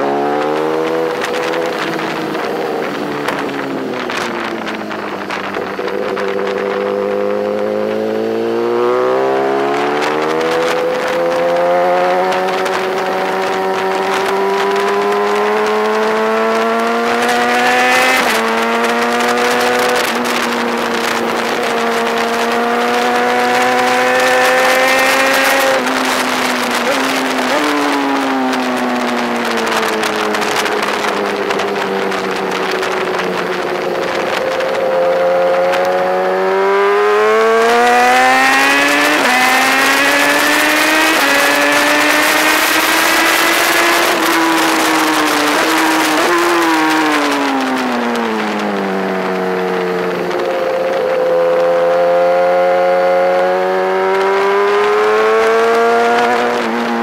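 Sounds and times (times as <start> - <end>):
motorcycle engine running hard: 0.0 - 57.0.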